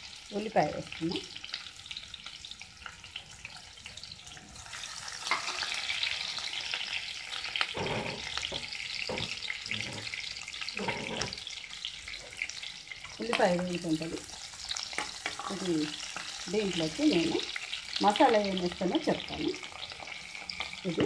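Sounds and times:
onions sizzling in oil: 0:00.0 - 0:21.0.

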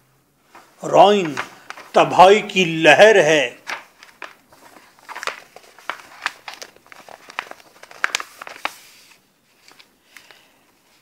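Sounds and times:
crinkling rustling clicks: 0:00.5 - 0:02.1, 0:03.6 - 0:08.9.

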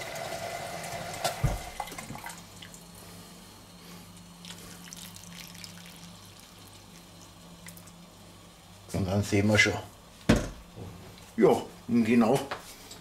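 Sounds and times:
water running: 0:04.4 - 0:08.2
water trickling into a pot: 0:04.4 - 0:08.2.

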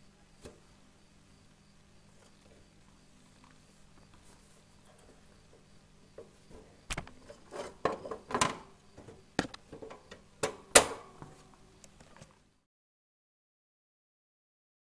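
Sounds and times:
faint steady hum: 0:00.0 - 0:12.7
sharp clicks and knocks: 0:05.6 - 0:12.3.

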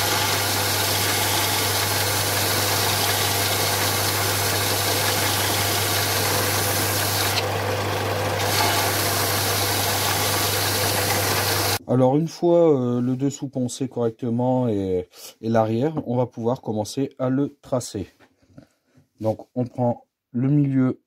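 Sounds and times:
belt sander running: 0:00.0 - 0:11.8.

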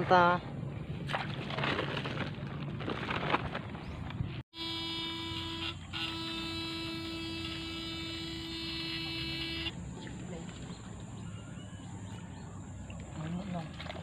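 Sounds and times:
electrofishing shocker buzzing: 0:04.5 - 0:09.8.

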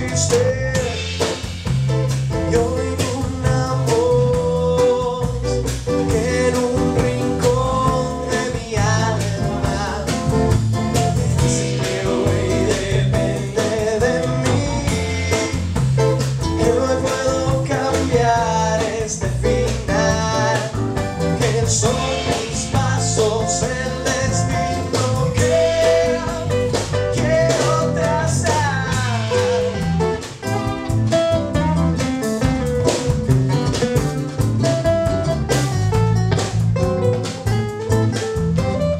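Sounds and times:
man singing lead: 0:00.0 - 0:01.6, 0:02.3 - 0:30.9
live band playing: 0:00.0 - 0:38.9.

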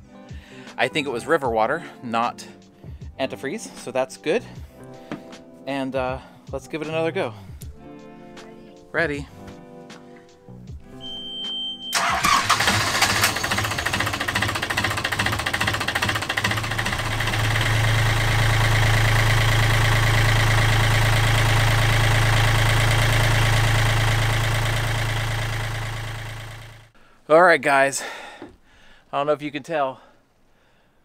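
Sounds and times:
brief beep: 0:11.0 - 0:12.0
diesel engine starting and idling: 0:11.9 - 0:27.0.

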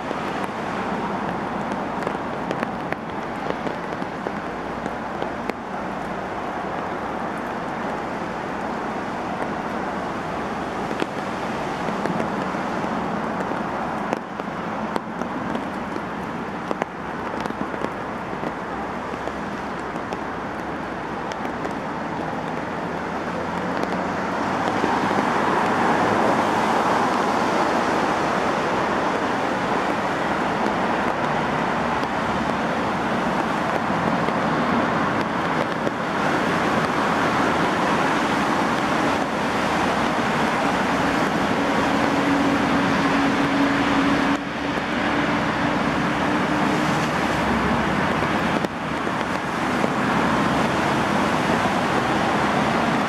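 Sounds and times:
heavy rain on pavement and foliage: 0:00.0 - 0:53.0.

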